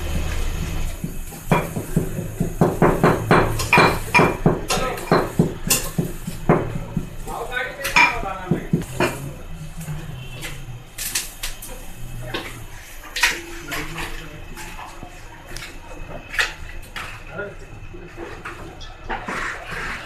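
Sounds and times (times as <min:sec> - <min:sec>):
pestle pounding in metal mortar: 0:01.0 - 0:07.2.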